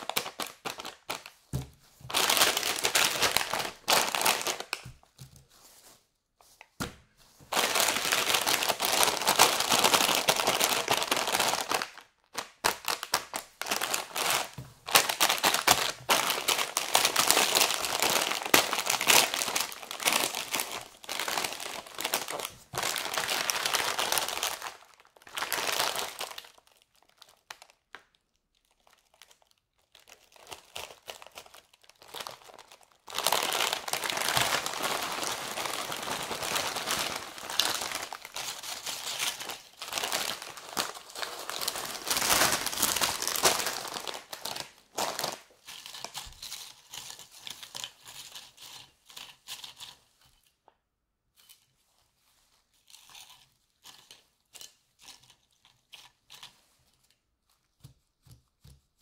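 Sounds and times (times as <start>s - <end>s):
plastic chip bag crinkling: 0.0s - 6.6s, 7.4s - 50.0s, 52.7s - 57.6s
chips shifting inside bag: 2.0s - 4.9s, 30.2s - 49.9s.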